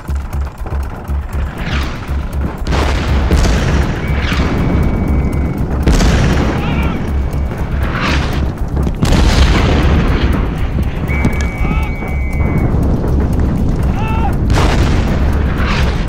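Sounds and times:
film music: 0.0s - 16.0s
loud explosion: 0.0s - 16.0s
pulsing low rumble: 0.0s - 16.0s
falling shell whistle: 3.8s - 5.6s, 11.0s - 12.8s.

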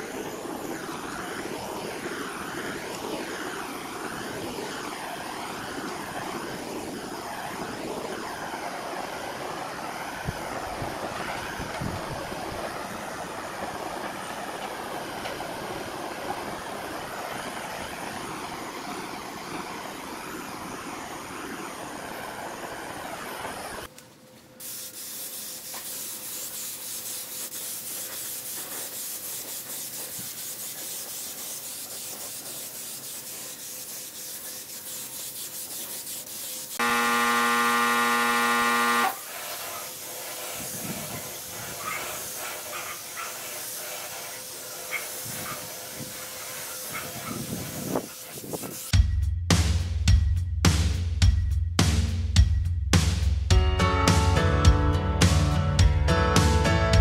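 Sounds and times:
spray gun hissing: 0.0s - 23.9s, 24.6s - 48.9s
torch flame roaring: 0.0s - 23.9s
loud buzzing tone: 36.8s - 39.3s.

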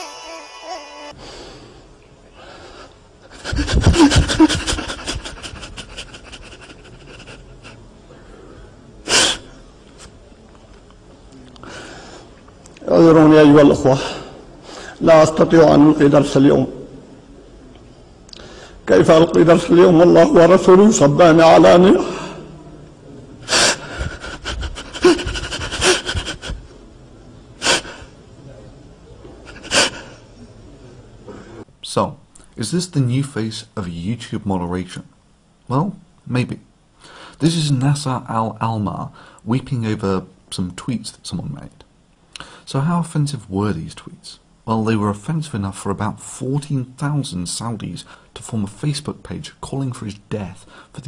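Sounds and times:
sharp intake of breath: 1.1s - 4.7s, 5.8s - 9.6s, 18.4s - 18.9s, 37.0s - 37.4s, 39.1s - 39.4s, 42.4s - 42.7s, 50.7s - 51.0s
sobbing gasps: 2.6s - 7.8s, 23.4s - 26.7s, 27.6s - 28.1s, 29.5s - 30.2s
man weeping: 3.3s - 7.8s, 23.5s - 26.7s.

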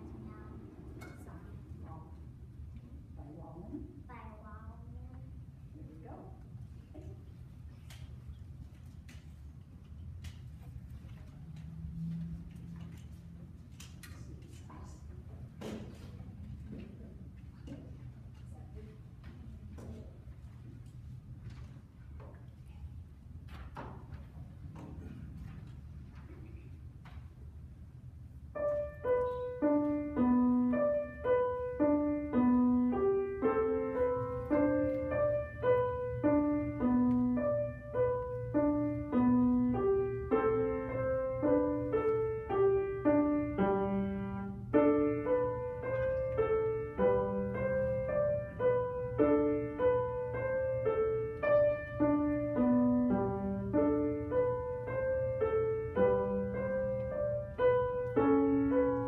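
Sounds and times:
grand piano piece: 0.0s - 13.9s, 18.9s - 59.0s
low steady hum: 0.0s - 59.0s.

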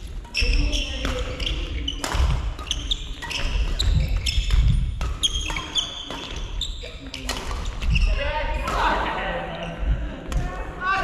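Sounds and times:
shoes squeaking on court floor: 0.0s - 8.4s
rackets hitting shuttlecock: 0.2s - 9.1s.

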